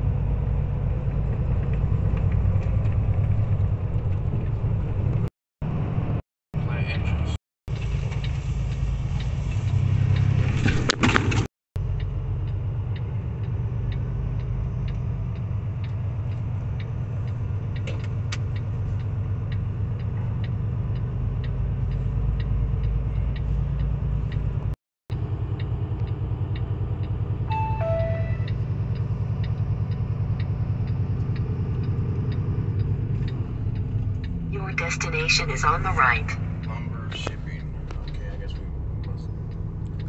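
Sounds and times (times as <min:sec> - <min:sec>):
truck engine running: 0:07.0 - 0:40.0
turn signal clicking: 0:11.9 - 0:40.0
two-note electronic chime: 0:27.5 - 0:28.8.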